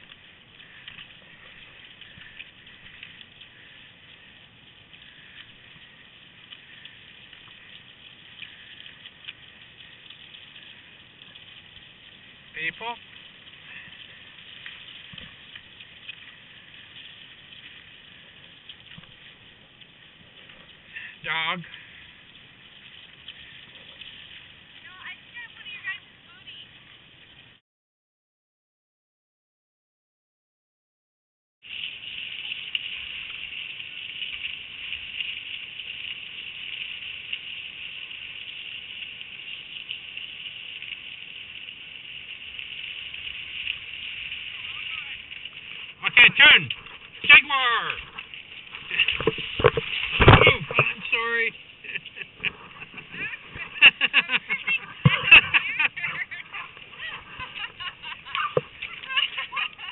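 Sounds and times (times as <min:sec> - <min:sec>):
faint ticks: 0:00.0 - 0:24.8
skis hissing over snow: 0:31.6 - 0:47.9, 0:50.8 - 0:59.9
small snow crunches: 0:31.7 - 0:59.9.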